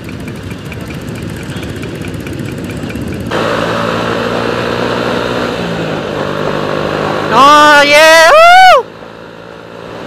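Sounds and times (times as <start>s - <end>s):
motorcycles idling: 0.0s - 4.7s
motorcycle riding at speed: 0.0s - 10.0s.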